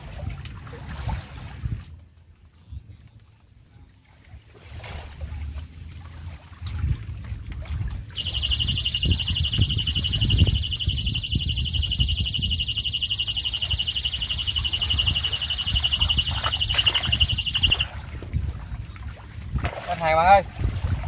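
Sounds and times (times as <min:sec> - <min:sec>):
wind rumble on microphone: 0:00.0 - 0:21.0
pulsing high electronic beep: 0:08.2 - 0:17.9.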